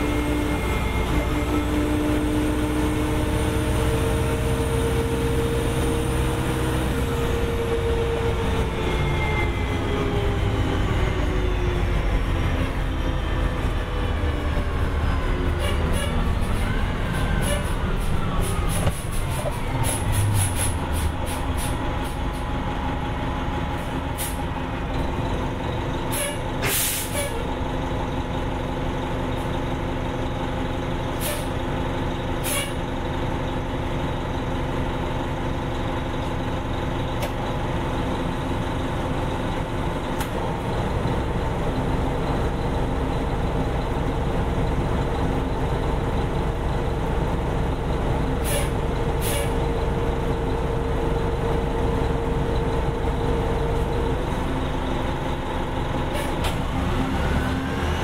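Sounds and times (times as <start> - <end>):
bus diesel engine running: 0.0 - 58.0
air brakes hissing: 15.6 - 22.4, 23.8 - 24.5, 26.1 - 27.5, 31.1 - 31.6, 32.4 - 32.8, 48.3 - 49.7, 56.1 - 56.6.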